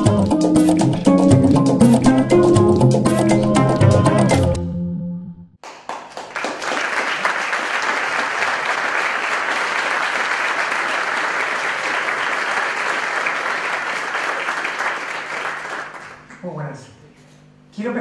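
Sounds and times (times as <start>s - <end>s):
audience applauding: 5.6s - 16.3s.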